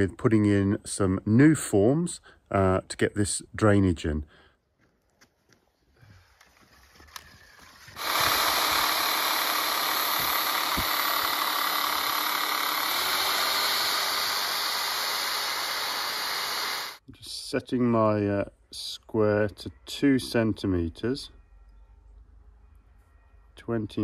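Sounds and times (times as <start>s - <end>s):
reciprocating saw cutting wood: 7.9s - 17.0s.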